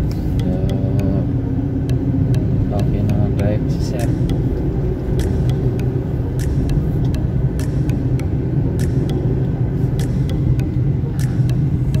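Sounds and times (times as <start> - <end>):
engine and tyre rumble: 0.0 - 12.0
light sharp clicks: 11.2 - 11.6.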